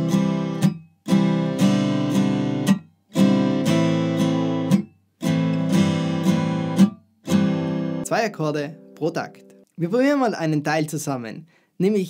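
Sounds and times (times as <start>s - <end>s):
acoustic guitar strummed percussively: 0.0s - 9.7s.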